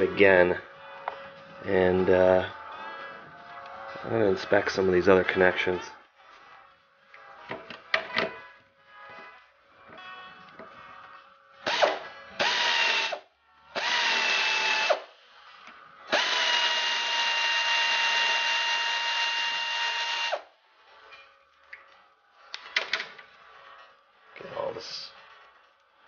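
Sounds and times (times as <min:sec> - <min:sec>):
power drill running: 0:11.6 - 0:13.2, 0:13.8 - 0:15.2, 0:16.1 - 0:20.5.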